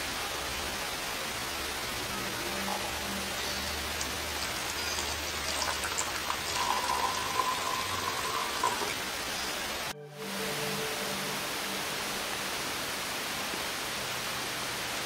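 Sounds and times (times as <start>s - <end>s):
water pouring in thin stream: 0.0s - 9.9s
steady hiss: 0.0s - 15.0s.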